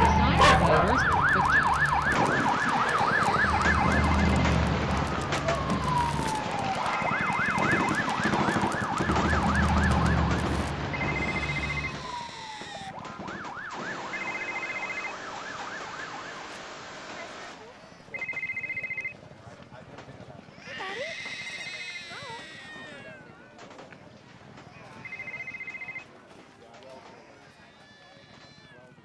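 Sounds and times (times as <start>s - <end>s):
emergency siren yelping: 0.0s - 17.4s, 18.1s - 19.1s.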